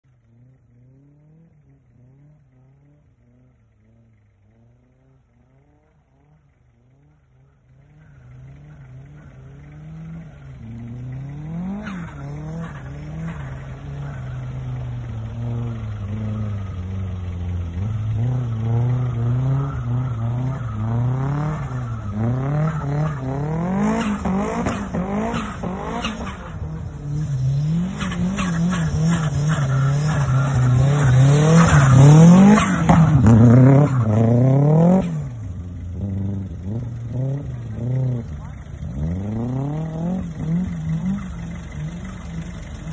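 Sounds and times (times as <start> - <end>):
car engine revving: 0.1 - 42.9
spinning tyres hissing: 6.2 - 42.9.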